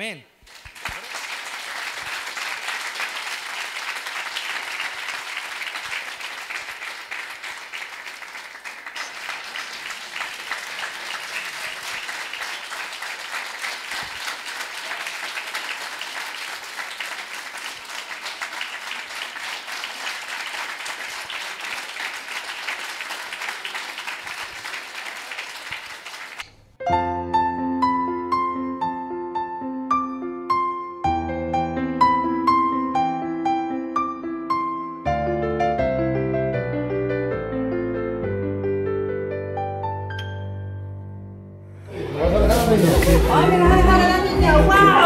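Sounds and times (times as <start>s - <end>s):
congregation applauding: 0.0s - 26.5s, 41.9s - 45.0s.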